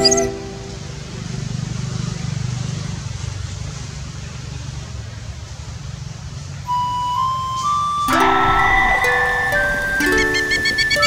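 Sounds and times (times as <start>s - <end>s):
background music melody: 0.0s - 1.4s, 6.7s - 11.0s
faint outdoor hiss: 0.0s - 2.9s.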